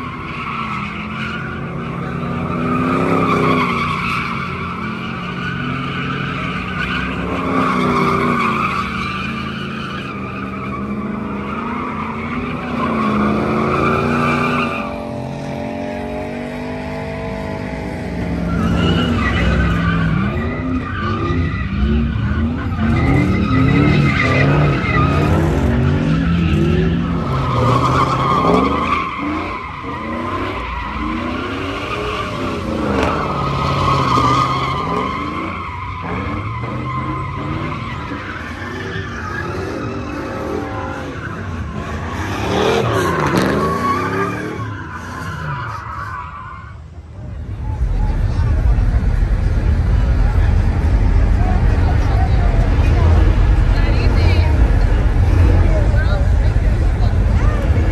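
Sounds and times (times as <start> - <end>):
truck engines revving: 0.0 - 57.9
tyres screeching: 18.2 - 48.2.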